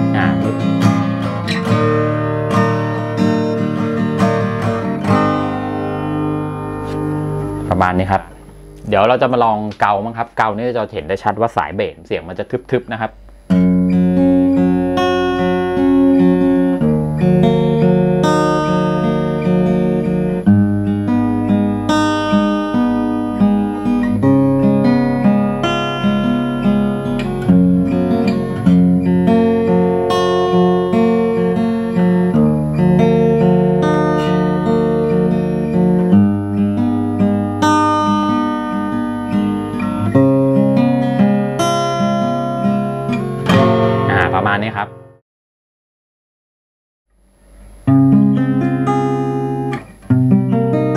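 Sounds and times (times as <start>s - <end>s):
fingerpicked acoustic guitar: 0.0s - 9.8s, 12.7s - 45.2s, 47.2s - 50.9s.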